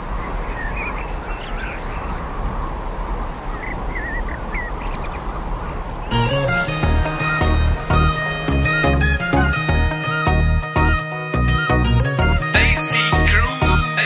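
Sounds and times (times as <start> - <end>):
birds chirping: 3.5 - 14.0
music: 6.1 - 14.0.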